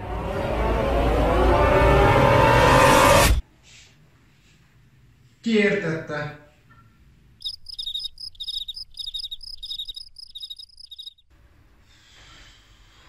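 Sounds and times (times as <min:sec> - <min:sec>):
cricket chirping: 0:07.4 - 0:11.2.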